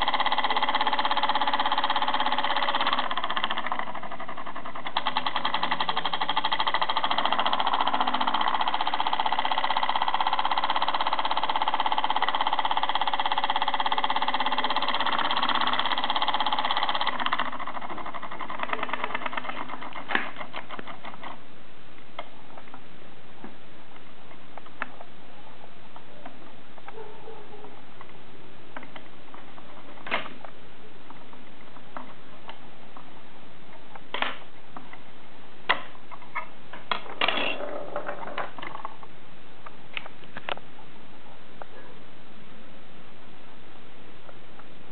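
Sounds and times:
solenoid motor clicking and buzzing: 0:00.0 - 0:20.6.

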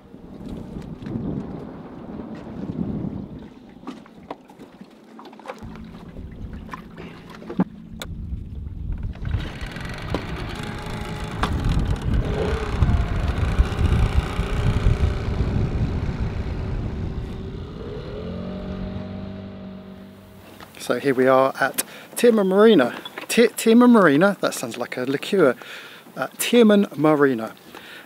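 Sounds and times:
rushing water: 0:01.8 - 0:07.7
outboard motor running: 0:05.5 - 0:20.8
rushing wind: 0:07.8 - 0:20.6.

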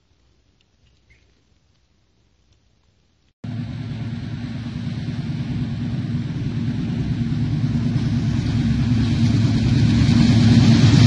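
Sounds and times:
diesel locomotive engine rumble: 0:03.4 - 0:11.0.

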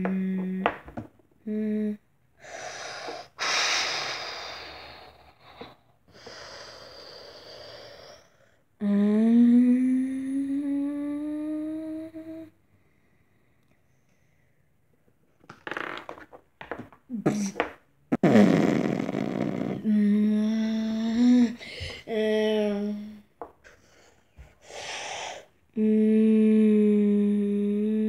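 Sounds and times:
breathy hissing exhalations: 0:02.4 - 0:08.6, 0:23.7 - 0:25.5
person humming rising note: 0:08.8 - 0:12.5, 0:25.8 - 0:28.0.

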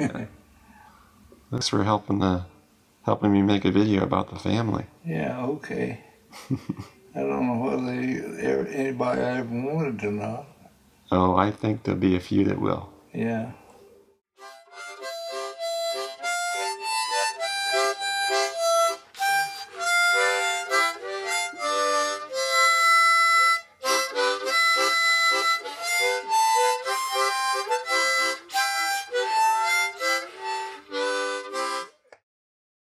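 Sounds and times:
solo harmonica tune: 0:14.4 - 0:32.1.

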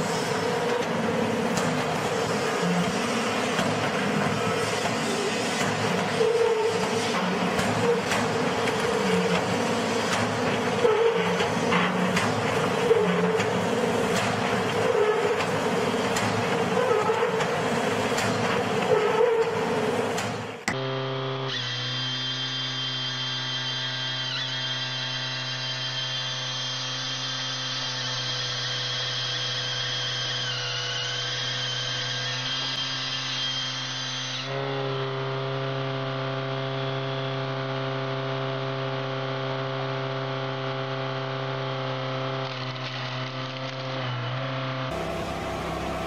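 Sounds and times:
chainsaw bar whine: 0:00.0 - 0:46.0
engine and hydraulic drone: 0:00.0 - 0:46.0.

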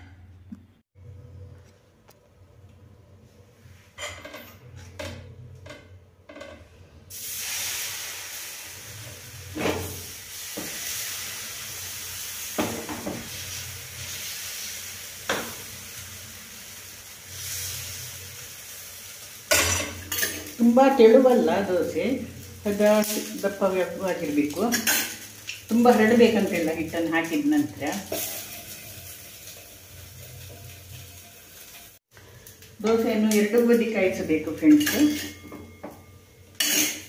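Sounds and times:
batter sizzling on hot griddle: 0:07.1 - 0:35.4, 0:36.5 - 0:37.0.

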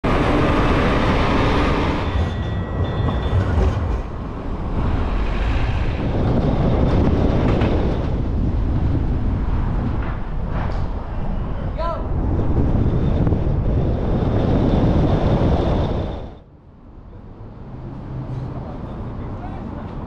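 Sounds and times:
vehicle and road rumble: 0:00.0 - 0:20.0.

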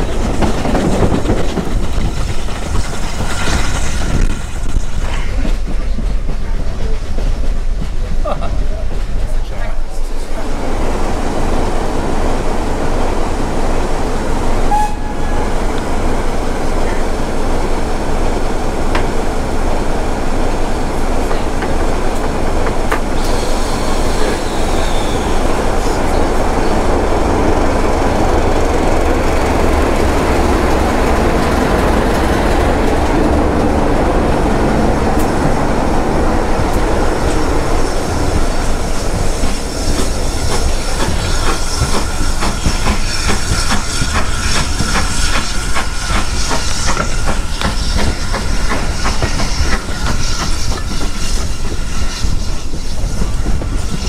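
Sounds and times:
diesel locomotive passing: 0:00.0 - 0:54.0
steam locomotive passing: 0:00.0 - 0:54.0
train wheels rumbling on rails: 0:00.0 - 0:54.0.

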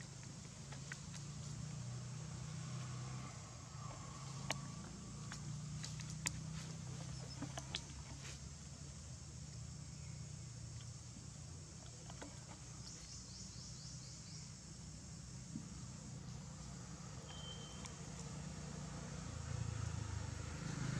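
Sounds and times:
short high chirps: 0:17.2 - 0:18.0.

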